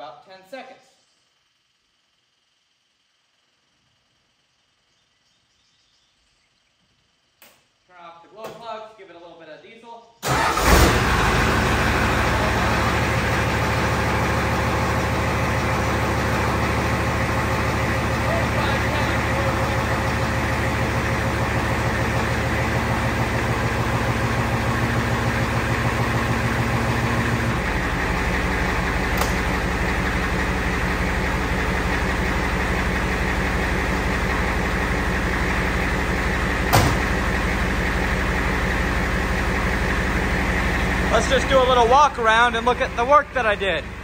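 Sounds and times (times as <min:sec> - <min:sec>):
diesel engine idling: 0:10.2 - 0:44.0.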